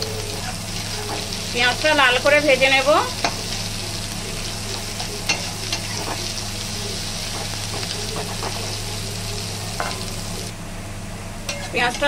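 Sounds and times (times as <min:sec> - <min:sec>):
onions sizzling in hot oil: 0:00.0 - 0:10.6
spatula scraping a pan: 0:03.2 - 0:08.9.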